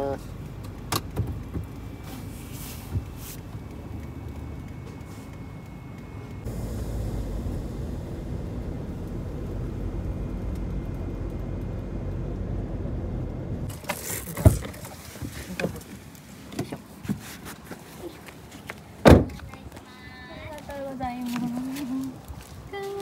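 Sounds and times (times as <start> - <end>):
car cabin hum: 0.0 - 21.9.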